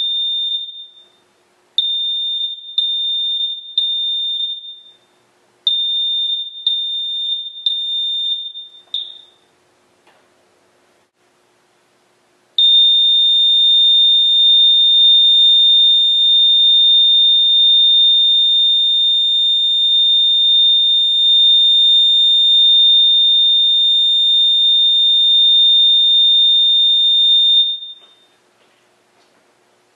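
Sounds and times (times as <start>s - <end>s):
fire alarm horn steady tone: 0.0s - 1.1s, 1.8s - 5.0s, 5.7s - 9.4s, 12.6s - 28.3s.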